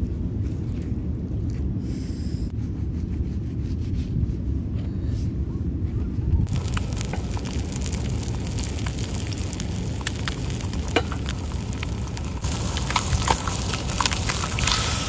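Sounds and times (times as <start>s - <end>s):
low rumble: 5.4s - 15.0s
fish sizzling in oil: 6.5s - 15.0s.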